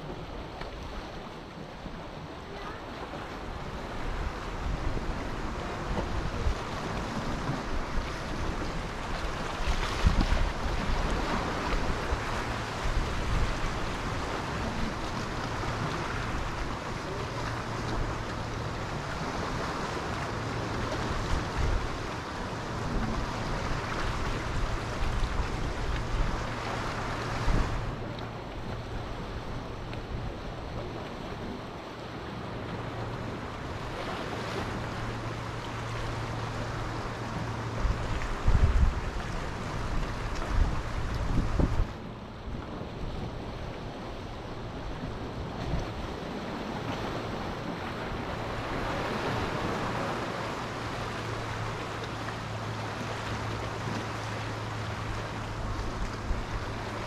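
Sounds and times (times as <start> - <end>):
sea waves breaking on shore: 0.0 - 57.0
wind buffeting microphone: 3.4 - 52.0.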